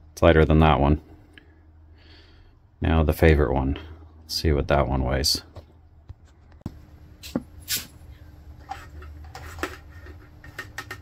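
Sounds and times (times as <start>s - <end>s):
faint steady hum: 0.0s - 11.0s
handling knocks and clicks: 8.6s - 11.0s.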